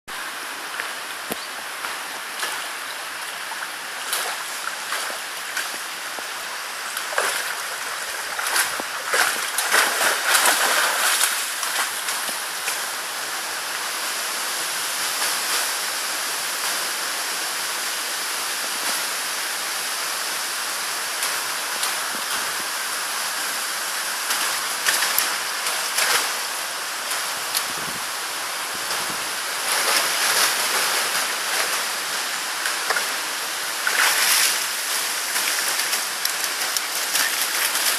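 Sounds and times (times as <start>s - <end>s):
river flowing over stones: 0.1s - 37.9s
dog splashing in water: 7.0s - 11.9s.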